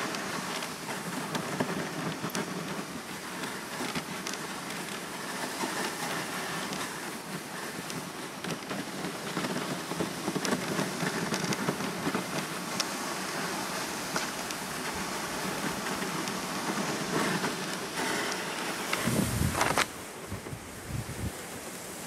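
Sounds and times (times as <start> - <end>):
sled runners hissing over snow: 0.0 - 22.0.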